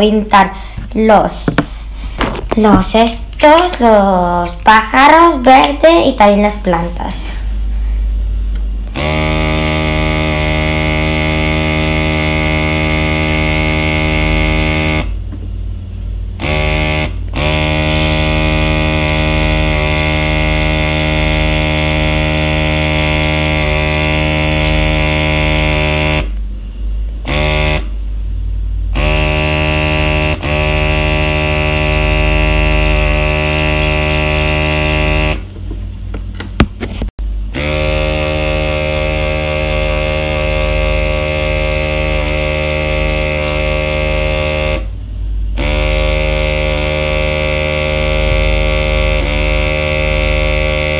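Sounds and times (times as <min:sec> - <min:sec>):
airbrush air pump buzzing: 0:08.3 - 0:15.2, 0:16.3 - 0:26.4, 0:27.2 - 0:27.9, 0:28.9 - 0:35.5, 0:37.5 - 0:50.9.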